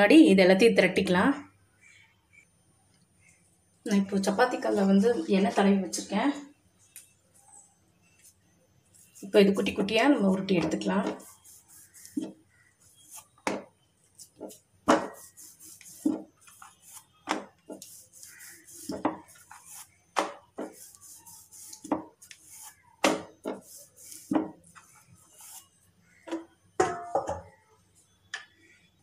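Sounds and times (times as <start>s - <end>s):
dough scraping and rubbing: 7.4s - 26.2s
rolling pin knocking on metal board: 26.3s - 27.5s.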